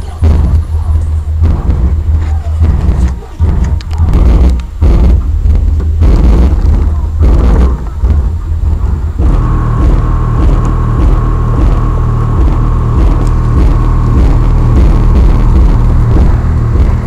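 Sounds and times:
bass-heavy rap music from car subwoofers: 0:00.0 - 0:17.0.

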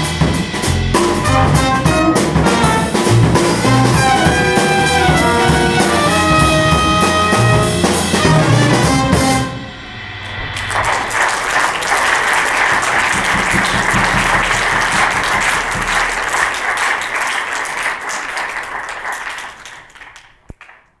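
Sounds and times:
audience applauding: 0:10.5 - 0:21.0.

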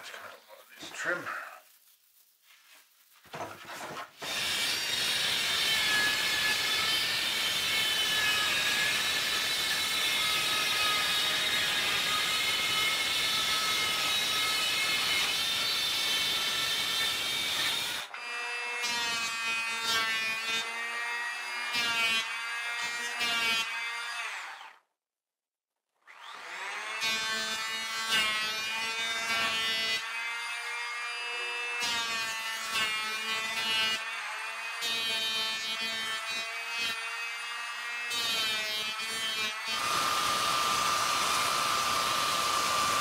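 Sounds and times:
circular saw cutting plywood: 0:04.2 - 0:24.7, 0:26.1 - 0:43.0.

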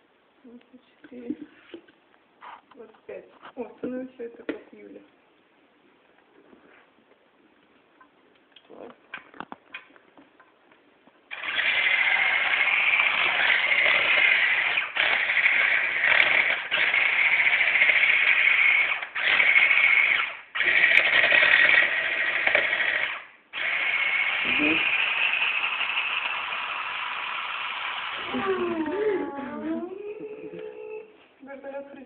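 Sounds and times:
electric hand mixer whining: 0:11.3 - 0:30.6.

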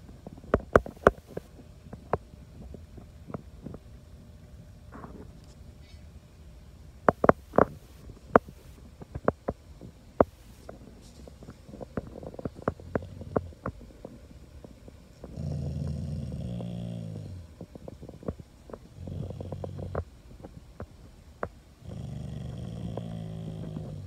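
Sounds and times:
dog grumbling groan: 0:12.6 - 0:13.6, 0:15.2 - 0:17.6, 0:18.9 - 0:20.1, 0:21.8 - 0:24.0.

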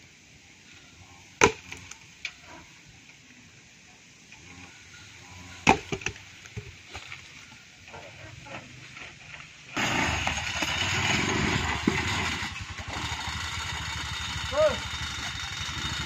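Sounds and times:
petrol engine running: 0:11.6 - 0:16.0.

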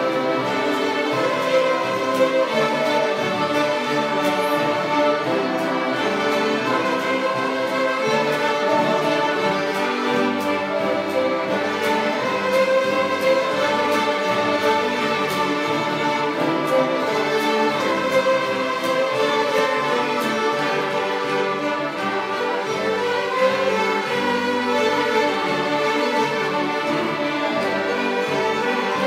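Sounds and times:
fiddles and cello playing: 0:00.0 - 0:29.0.

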